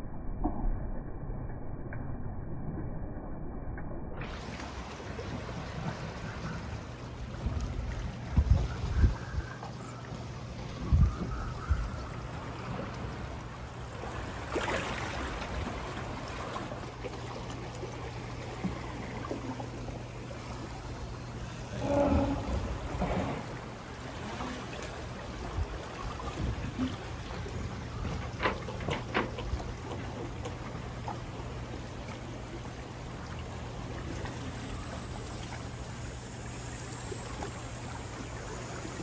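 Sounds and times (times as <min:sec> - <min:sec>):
river water rushing: 0:20.0 - 0:26.2.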